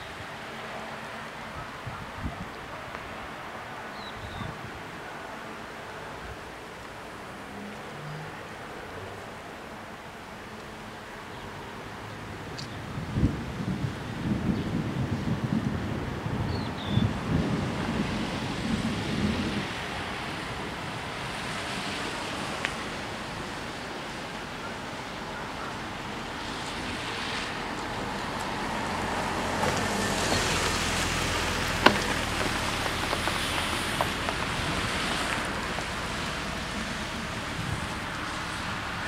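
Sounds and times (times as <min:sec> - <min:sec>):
wind buffeting microphone: 0:01.4 - 0:05.0, 0:12.1 - 0:39.0
car driving past: 0:26.4 - 0:39.0.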